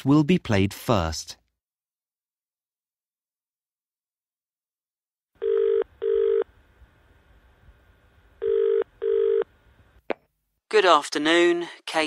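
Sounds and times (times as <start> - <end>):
telephone double ring tone: 5.4 - 6.5, 8.4 - 9.5.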